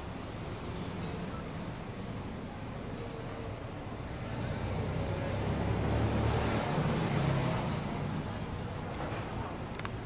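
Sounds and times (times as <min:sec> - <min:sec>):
vehicle passing: 0:04.2 - 0:09.5.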